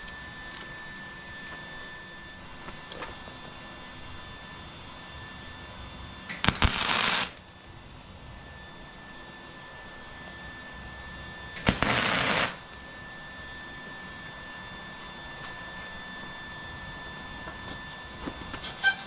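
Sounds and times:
arc welding crackling hiss: 6.3s - 7.9s, 11.6s - 13.4s.

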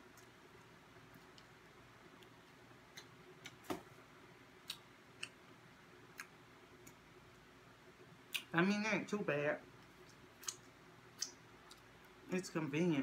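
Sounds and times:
chewing crunches: 9.8s - 12.1s.

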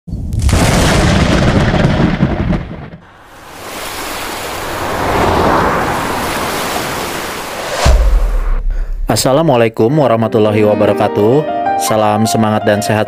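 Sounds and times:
thunder rumbling: 0.3s - 9.4s
rain: 3.1s - 7.8s.

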